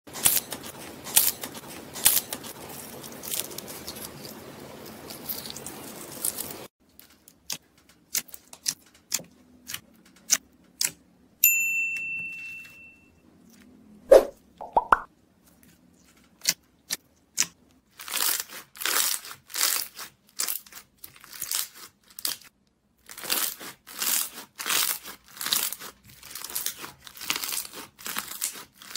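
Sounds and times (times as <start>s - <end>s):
bell-like ding: 11.4s - 13.2s.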